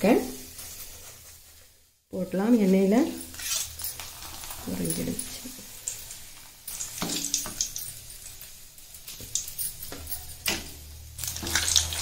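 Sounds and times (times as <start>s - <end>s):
frying in hot oil crackling: 0.0s - 12.0s
metal spoon scraping pan: 2.6s - 8.3s.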